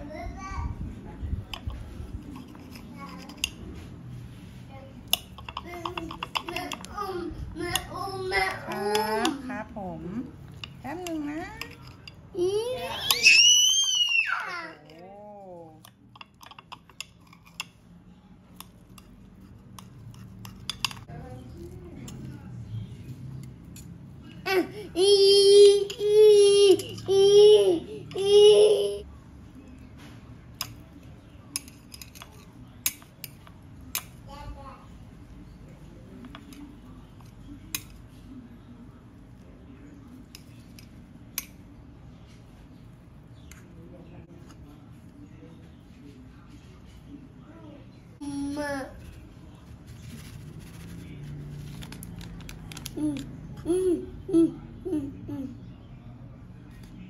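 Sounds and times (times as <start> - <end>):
metal chopsticks tapping ceramic plate: 5.1 - 6.9, 18.6 - 21.1.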